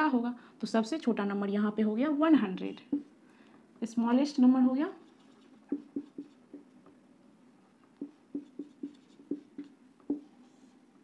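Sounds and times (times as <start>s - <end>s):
marker squeaking on whiteboard: 5.0s - 6.7s, 8.0s - 11.0s.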